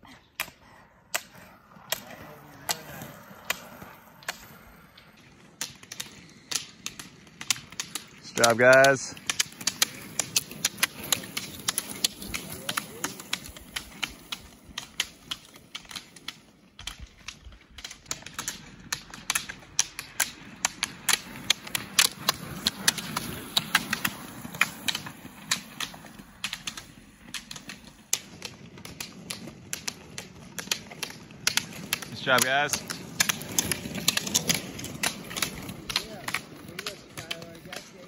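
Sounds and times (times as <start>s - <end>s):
ski poles clicking on asphalt: 0.2s - 38.0s
wheels rumbling on pavement: 17.6s - 38.0s.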